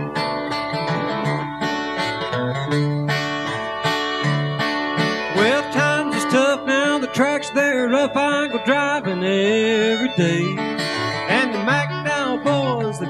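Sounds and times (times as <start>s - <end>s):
fiddle melody: 0.0s - 13.0s
flatpicked acoustic guitar: 0.0s - 13.0s.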